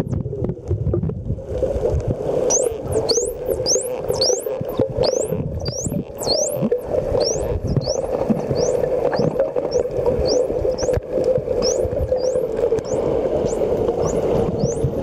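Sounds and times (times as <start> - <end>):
dolphin whistling: 2.4 - 11.0, 11.6 - 15.0.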